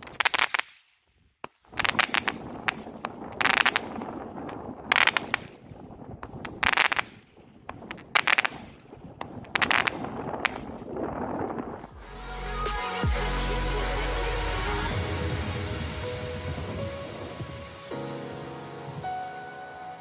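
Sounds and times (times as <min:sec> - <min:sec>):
firework shots crackling: 0:00.0 - 0:11.8.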